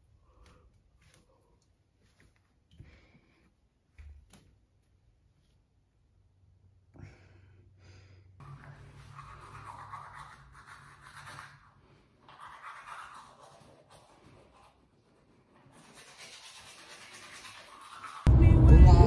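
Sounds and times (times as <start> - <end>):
toothbrush scrubbing teeth: 8.4 - 18.3.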